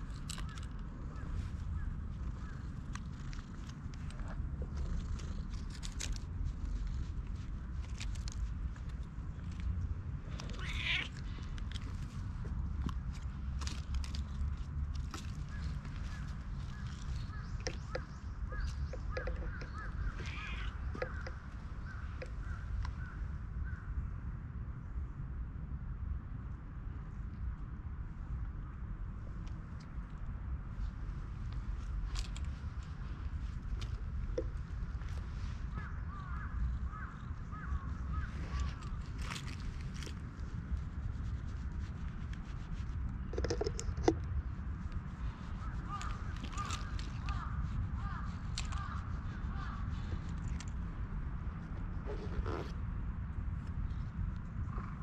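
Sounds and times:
steady low rumble: 0.0s - 55.0s
birds chirping: 15.2s - 23.2s
hand stroking cat fur: 31.6s - 44.2s.

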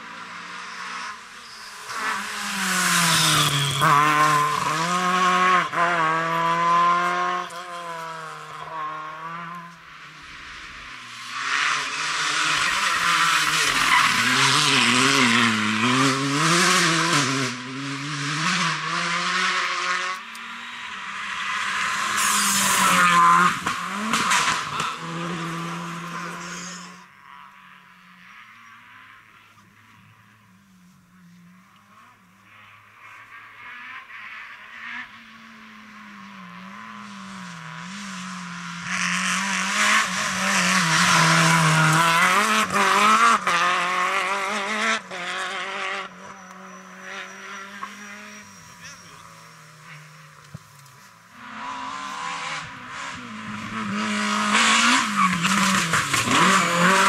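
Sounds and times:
rally cars revving past: 0.0s - 57.0s.

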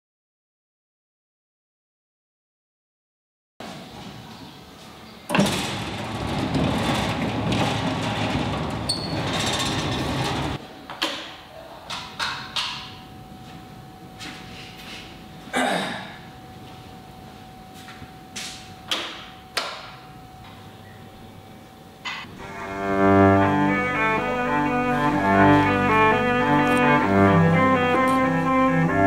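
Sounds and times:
large door rolling open: 3.6s - 10.6s, 22.2s - 29.0s.

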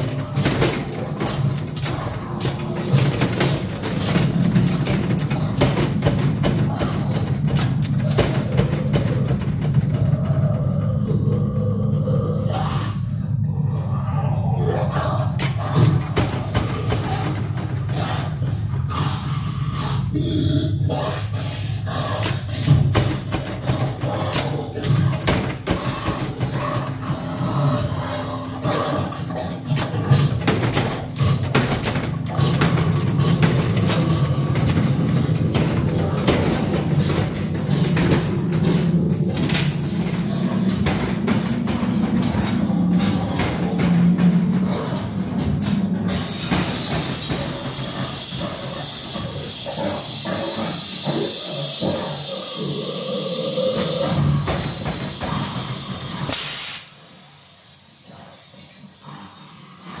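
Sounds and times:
pneumatic air hissing: 0.0s - 9.2s, 22.2s - 26.5s, 29.8s - 41.8s, 46.1s - 58.0s
crate knocking and clattering: 0.0s - 10.9s, 15.4s - 18.9s, 22.3s - 28.0s, 29.8s - 48.0s
steady low drone: 0.0s - 56.3s
growling soundtrack: 0.0s - 60.0s
loud burst of air: 54.6s - 57.6s.

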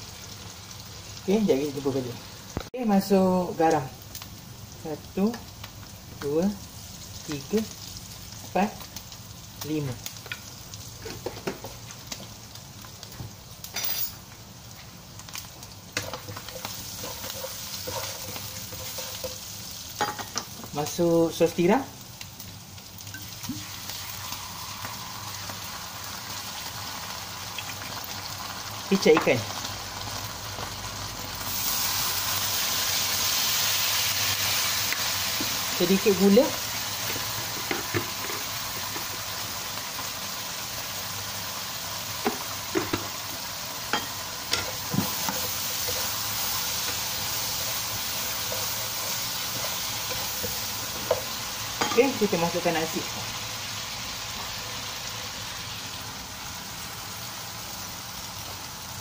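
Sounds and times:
food sizzling in oil: 0.0s - 59.0s
wooden spatula stirring: 16.0s - 19.5s.

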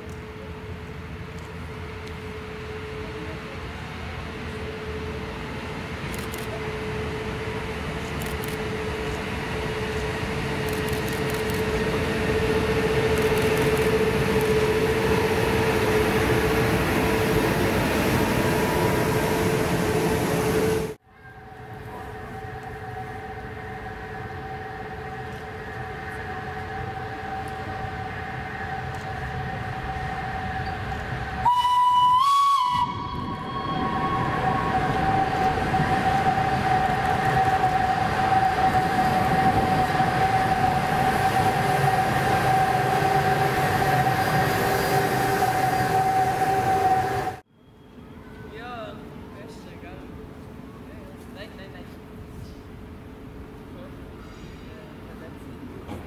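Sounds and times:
electric locomotive humming: 0.0s - 56.0s
locomotive horn blast: 22.0s - 47.4s.

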